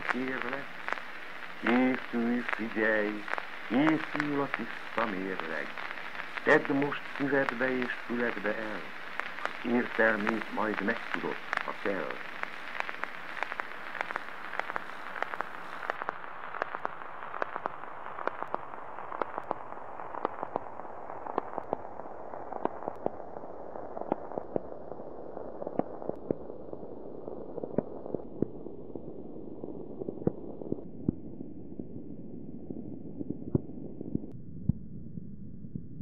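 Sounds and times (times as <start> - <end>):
steady hiss: 0.0 - 28.2
crackles and pops: 0.0 - 36.0.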